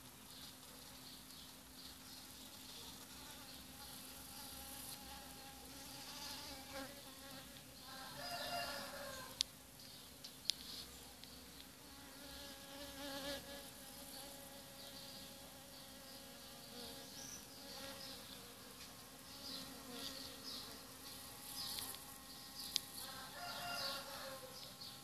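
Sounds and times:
bees buzzing: 11.8 - 24.5.

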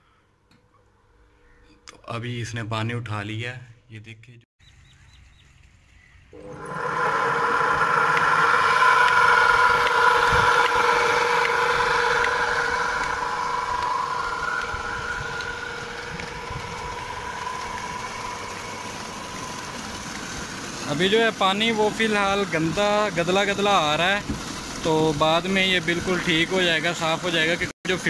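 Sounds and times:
electric motor humming: 6.4 - 27.7
water rushing from pipe: 6.4 - 28.0.

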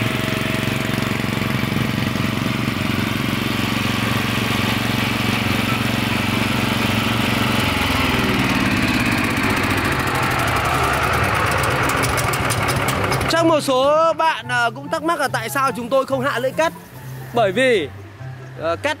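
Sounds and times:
concrete saw engine revving: 0.0 - 14.0.

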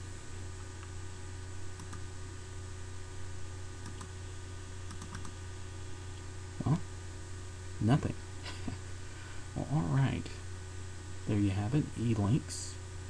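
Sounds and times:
low electrical hum: 0.0 - 13.0
computer mouse clicking: 1.7 - 2.0, 3.8 - 4.1, 4.9 - 5.4.

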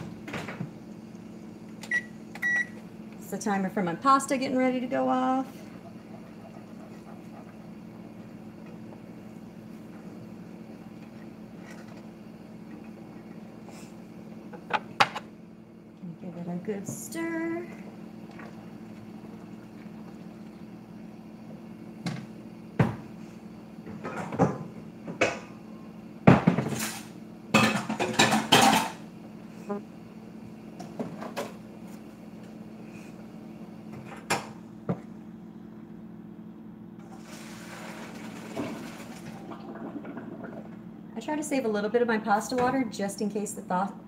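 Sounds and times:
steady low hum: 0.0 - 37.2, 38.4 - 44.0
pots and dishes clattering: 27.6 - 29.0.

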